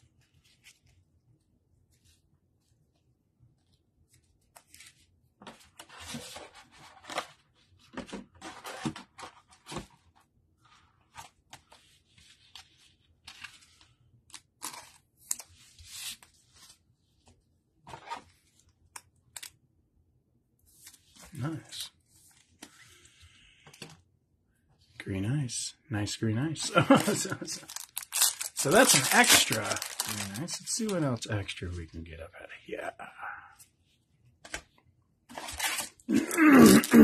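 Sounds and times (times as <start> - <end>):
plastic sleeve crinkling: 26.8 - 31.2.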